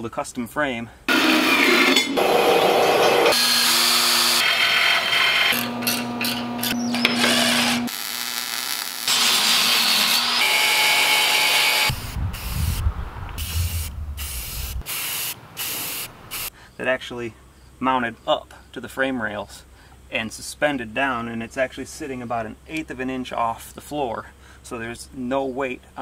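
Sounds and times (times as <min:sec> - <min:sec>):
band saw cutting steel: 0:01.1 - 0:12.0
cordless drill whine: 0:02.2 - 0:08.1, 0:09.0 - 0:12.1
aerosol spray paint bursts: 0:13.4 - 0:16.5.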